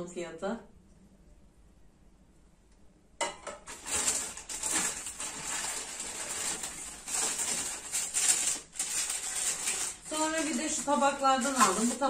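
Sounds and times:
plastic bag rustling: 3.6s - 12.0s.

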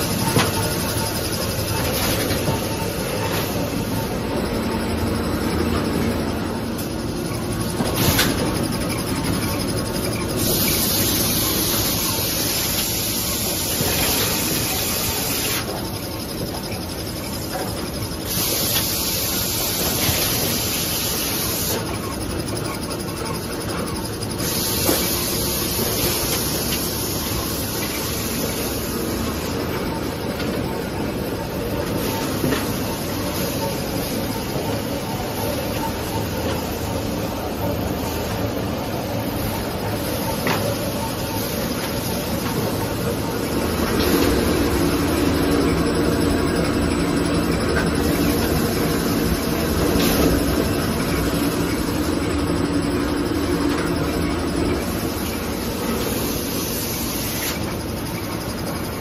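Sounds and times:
mechanical clatter of rollers: 0.0s - 59.0s
hiss: 7.8s - 22.1s, 23.6s - 29.5s, 39.3s - 45.5s, 54.8s - 58.8s.

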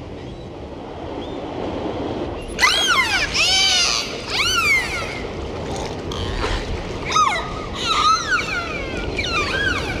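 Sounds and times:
dolphins whistling: 2.5s - 5.3s, 7.1s - 10.0s.

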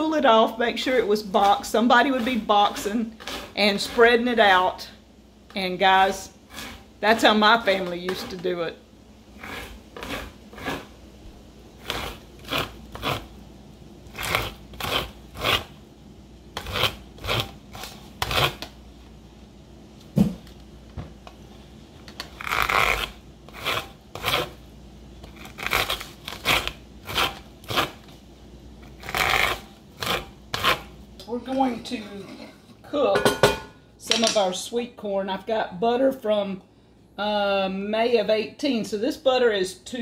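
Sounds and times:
corn scraping on cutter blade: 1.5s - 4.3s, 6.5s - 8.5s, 9.4s - 10.9s, 11.8s - 13.3s, 14.1s - 15.8s, 16.6s - 18.7s, 22.3s - 24.6s, 25.2s - 28.1s, 28.8s - 30.9s.

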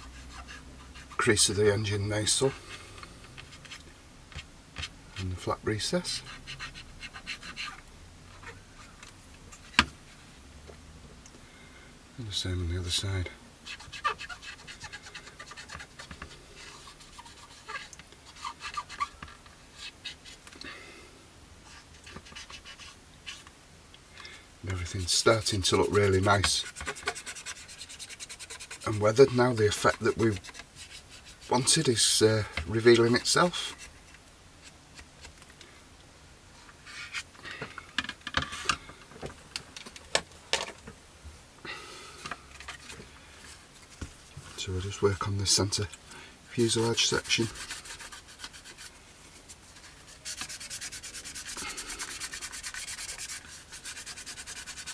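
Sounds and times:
cotton bud scratching on plastic: 13.6s - 20.4s, 24.7s - 34.0s, 46.6s - 54.9s.

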